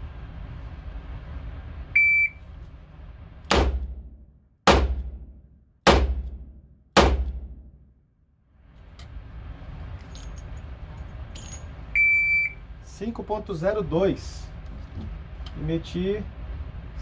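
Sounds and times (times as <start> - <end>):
shot timer beep: 2.0 - 2.4, 12.0 - 12.6
revolver shots echoing indoors: 3.4 - 8.3.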